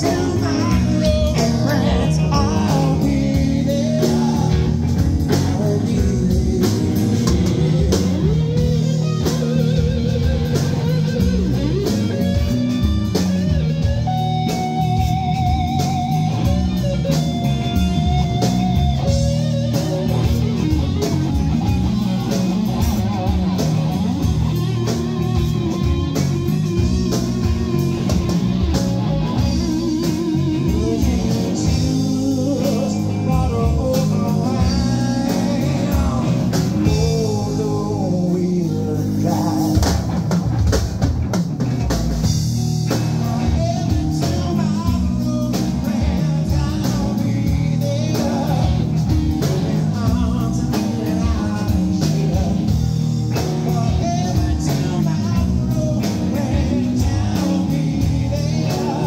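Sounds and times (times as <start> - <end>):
drum kit: 0.0 - 59.0
electric bass: 0.0 - 59.0
lead electric guitar with vibrato: 0.0 - 59.0
second electric guitar: 0.0 - 59.0.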